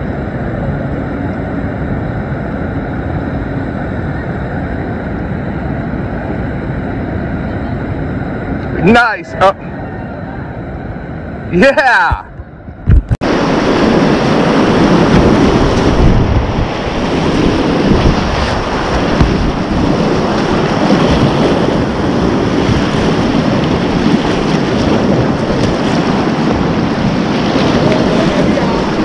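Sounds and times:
whitewater rapids rushing: 0:13.3 - 0:29.0.

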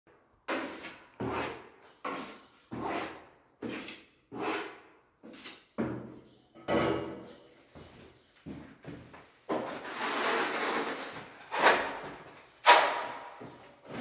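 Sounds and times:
putty knife scraping filler: 0:00.5 - 0:05.8, 0:09.6 - 0:13.2.

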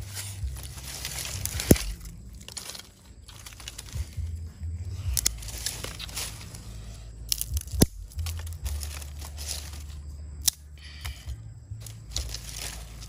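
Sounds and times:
low rumble: 0:00.0 - 0:13.0
sticks rustling: 0:00.0 - 0:13.0
twigs snapping: 0:00.0 - 0:13.0.

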